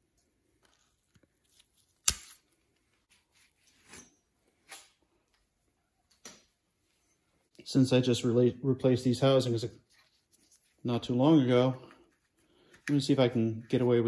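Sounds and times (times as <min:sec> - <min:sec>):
gloved hands rustling: 0:09.6 - 0:14.0.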